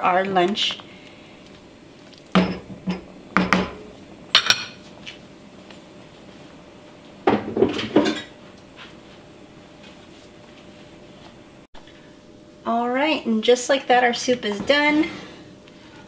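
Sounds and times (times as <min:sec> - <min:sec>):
kitchenware clatter: 0:02.4 - 0:03.8, 0:04.4 - 0:04.8, 0:07.3 - 0:08.4.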